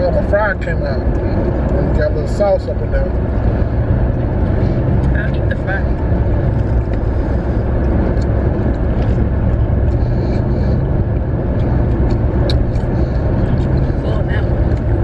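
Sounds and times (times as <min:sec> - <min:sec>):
car cabin rumble: 0:00.0 - 0:15.0.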